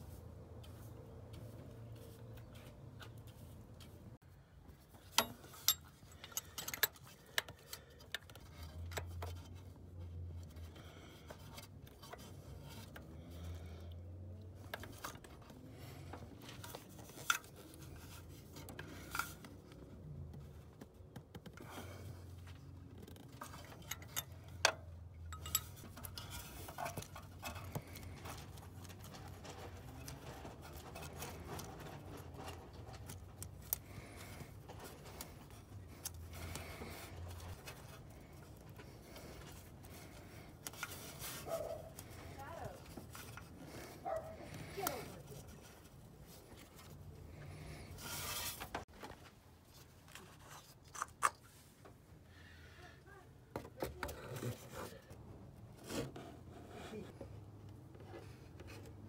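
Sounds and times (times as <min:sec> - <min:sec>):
wrench clinking on metal: 0:05.0 - 0:07.5, 0:25.2 - 0:26.2.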